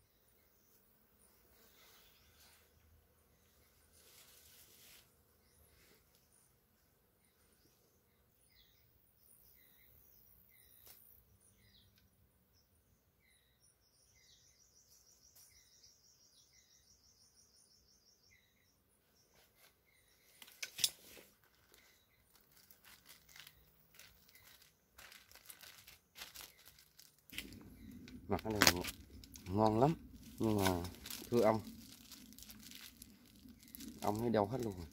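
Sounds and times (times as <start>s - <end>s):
faint bird chirps: 7.2s - 34.9s
plastic bag crinkling: 21.3s - 34.9s.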